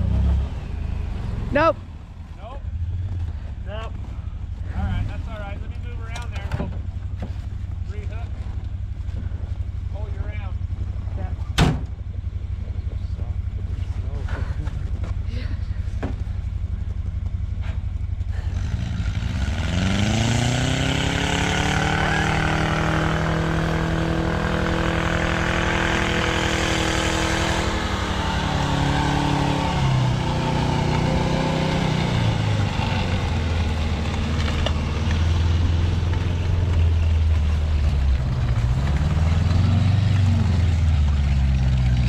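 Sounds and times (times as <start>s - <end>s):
snowcat engine revving under load: 18.4s - 37.1s.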